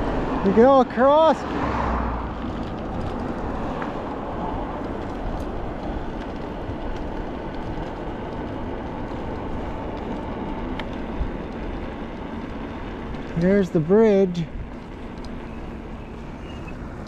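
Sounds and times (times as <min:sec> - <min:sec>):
road rumble: 0:00.0 - 0:17.0
wind while riding: 0:00.0 - 0:17.0.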